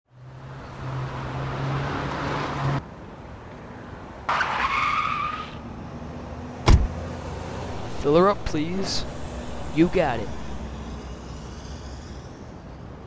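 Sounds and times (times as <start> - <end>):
tyre screech: 4.3 - 5.6, 7.7 - 13.0.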